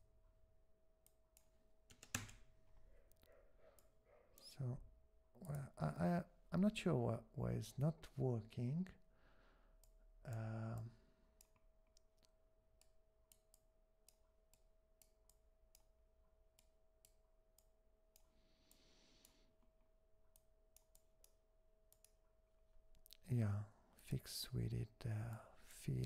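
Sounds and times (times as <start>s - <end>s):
man humming: 10.3s - 11.0s
computer mouse clicks: 20.3s - 22.2s.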